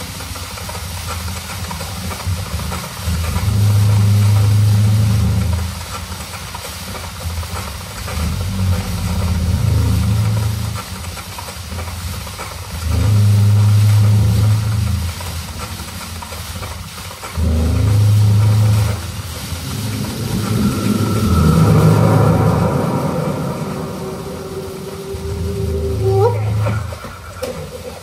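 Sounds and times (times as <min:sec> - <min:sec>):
steady hissing noise: 0:00.0 - 0:28.0
deep bass tone: 0:03.3 - 0:05.8, 0:12.9 - 0:15.2, 0:17.4 - 0:27.1.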